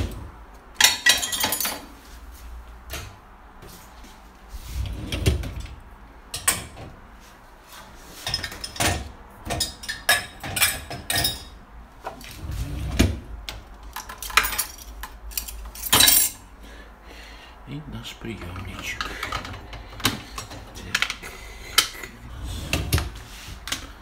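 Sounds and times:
dishes clinking in dishwasher racks: 0:00.8 - 0:01.9, 0:08.2 - 0:11.6, 0:14.0 - 0:16.4.

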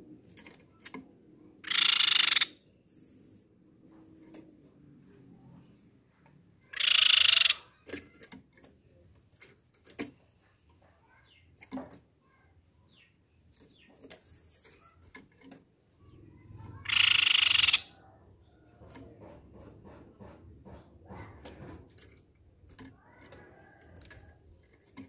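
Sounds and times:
bird rapid trilling call: 0:01.6 - 0:03.4, 0:06.7 - 0:07.7, 0:16.6 - 0:18.0.

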